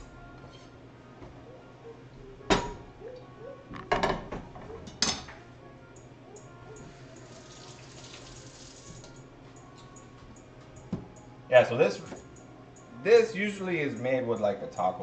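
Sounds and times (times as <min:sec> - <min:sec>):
kitchen tap running: 0:07.2 - 0:09.1.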